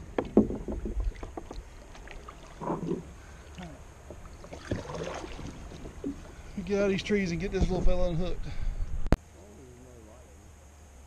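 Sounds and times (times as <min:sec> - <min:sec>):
paddle knocking against kayak: 0:00.0 - 0:03.1, 0:04.0 - 0:06.4
light paddle water sounds: 0:00.0 - 0:07.9.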